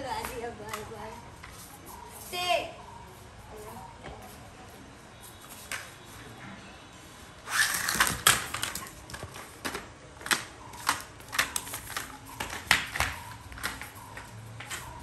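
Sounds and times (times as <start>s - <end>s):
dog scuffling: 7.5s - 15.0s
plastic toy clattering on tiles: 7.6s - 14.9s.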